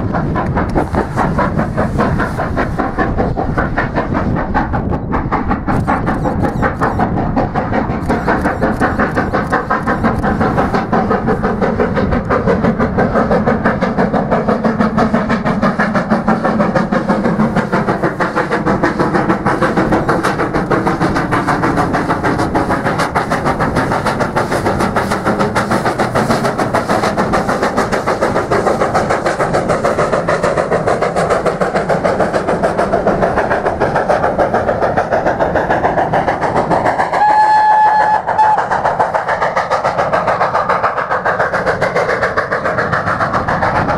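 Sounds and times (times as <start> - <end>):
coaches running on rails: 0.0 - 43.9
steam locomotive exhaust beat: 0.0 - 43.9
steam whistle blast: 37.2 - 38.6.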